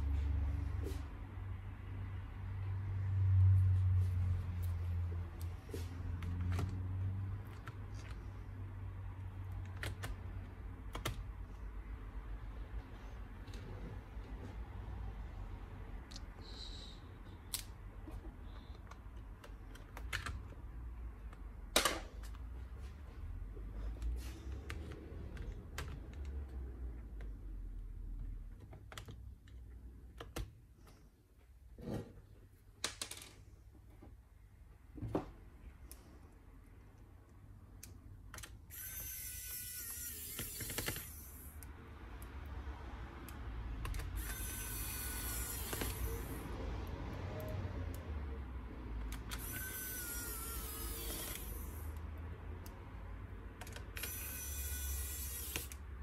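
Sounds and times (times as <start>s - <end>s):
electric screwdriver whirring: 38.7s - 41.5s, 44.0s - 46.4s, 49.2s - 51.9s, 53.7s - 55.8s.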